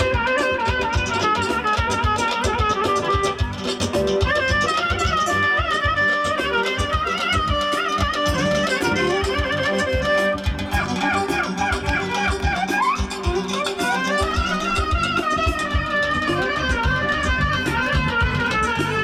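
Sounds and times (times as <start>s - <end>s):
ornamented clarinet melody: 0.0s - 19.0s
steady low beat: 0.0s - 19.0s.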